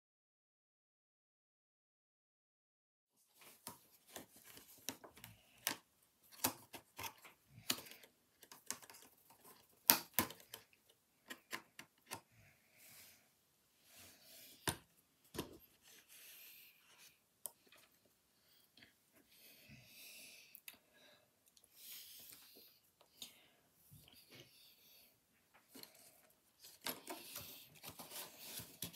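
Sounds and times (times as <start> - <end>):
rustling: 25.4 - 28.9.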